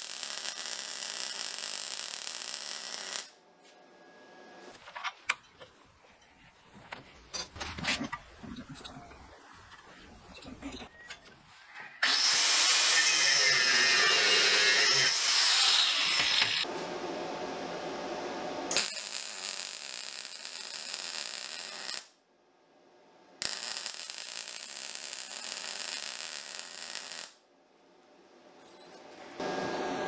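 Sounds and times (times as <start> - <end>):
welding arc sizzling: 0.0 - 3.4, 12.0 - 16.7, 18.7 - 22.1, 23.4 - 27.4.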